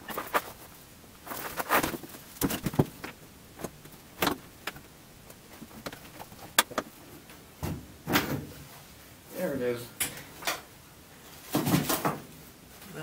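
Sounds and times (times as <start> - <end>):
knocks and clunks of handling things: 0.0 - 8.6, 11.4 - 12.3.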